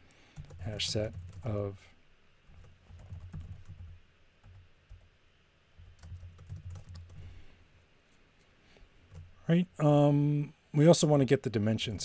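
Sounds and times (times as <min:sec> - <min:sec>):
typing on computer keyboard: 0:00.4 - 0:01.5, 0:02.5 - 0:05.1, 0:05.8 - 0:07.2.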